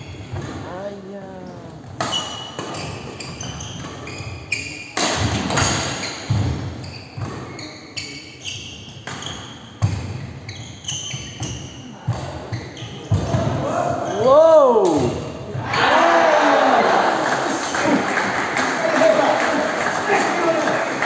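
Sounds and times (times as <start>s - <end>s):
shoes squeaking on wooden floor: 1.7s - 5.0s, 5.6s - 14.3s.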